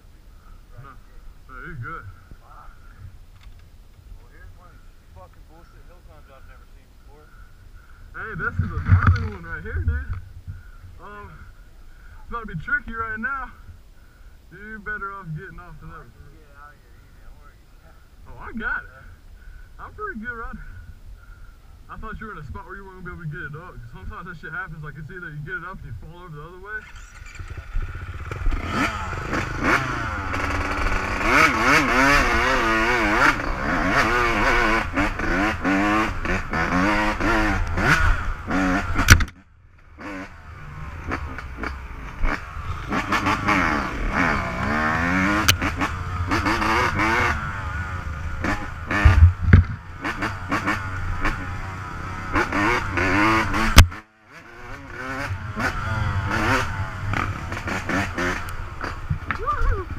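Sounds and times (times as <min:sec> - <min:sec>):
dirt bike engine revving: 0:08.1 - 0:11.5, 0:22.0 - 0:59.9.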